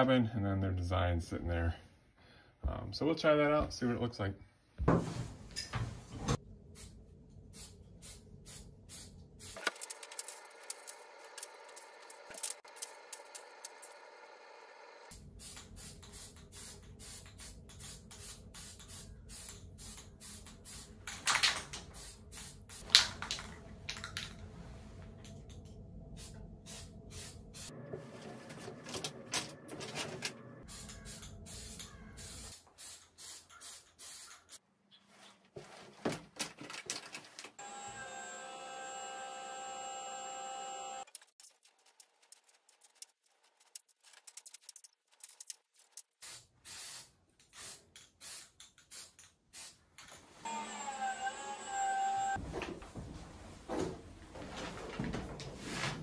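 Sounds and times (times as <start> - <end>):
spray paint can spraying: 7.5 - 14.0, 15.1 - 23.0, 30.6 - 34.6, 41.2 - 49.8.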